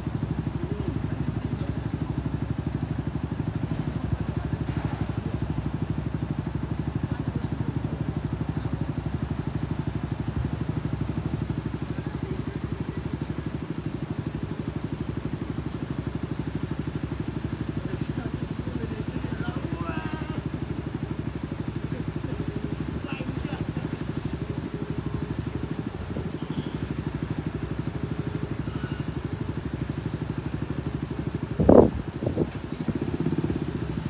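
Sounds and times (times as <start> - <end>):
vehicle engine idling: 0.0 - 34.0.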